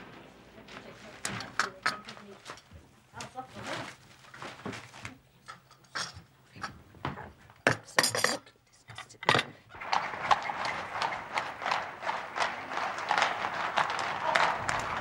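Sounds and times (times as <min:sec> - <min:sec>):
horses' hooves clattering: 0:09.0 - 0:15.0
street bustle: 0:09.7 - 0:15.0.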